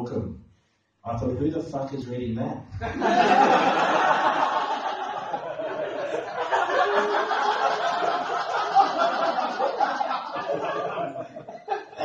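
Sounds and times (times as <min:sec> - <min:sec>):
audience laughing: 0:02.8 - 0:12.0.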